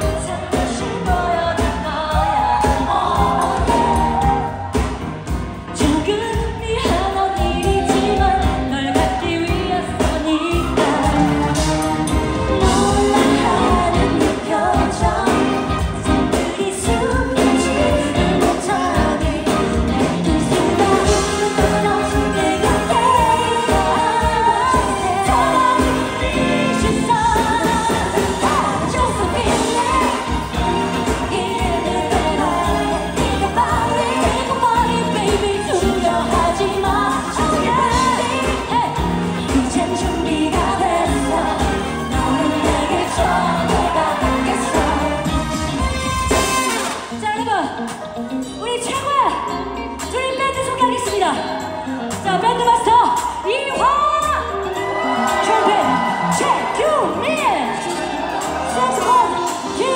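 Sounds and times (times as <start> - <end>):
woman singing into microphone: 0.0 - 4.7, 5.7 - 11.9, 12.6 - 45.6, 58.6 - 59.9
pop backing music: 0.0 - 59.9.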